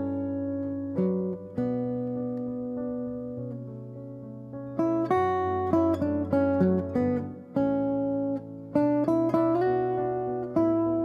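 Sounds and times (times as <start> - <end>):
acoustic guitar melody: 0.0 - 11.0.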